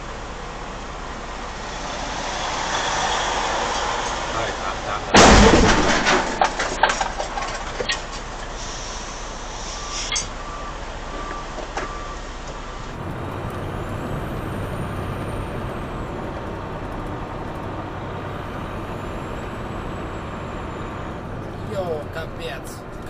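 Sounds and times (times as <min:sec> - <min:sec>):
outdoor vehicle noise: 0:00.0 - 0:23.0
truck cab engine and road noise: 0:00.0 - 0:23.0
low hum: 0:12.8 - 0:23.0.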